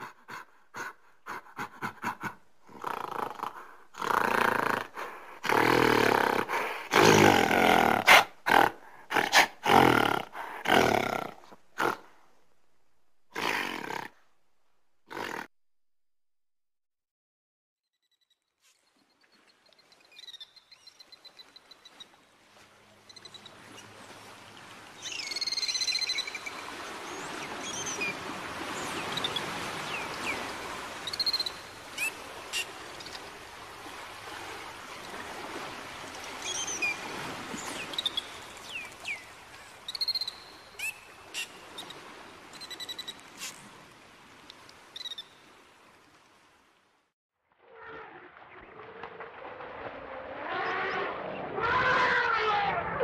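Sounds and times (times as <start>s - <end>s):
dolphin whistles and chirps: 39.9s - 42.0s.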